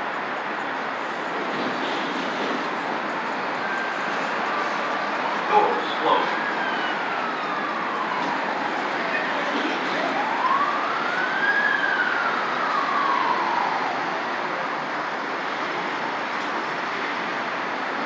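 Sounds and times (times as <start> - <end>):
traffic noise: 0.0 - 18.0
emergency siren wailing: 2.8 - 16.2.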